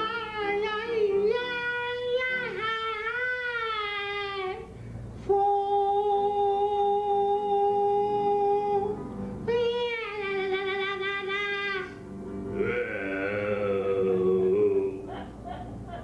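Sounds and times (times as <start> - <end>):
breath: 4.7 - 5.1
man singing long held notes: 5.2 - 9.0, 12.5 - 15.1.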